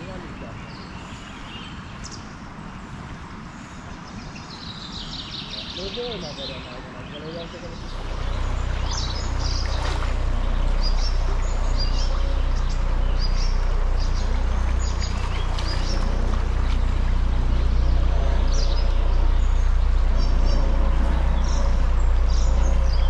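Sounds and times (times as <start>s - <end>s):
river water over rocks: 0.0s - 23.0s
small birds chirping: 0.0s - 23.0s
deep low rumble: 7.6s - 23.0s.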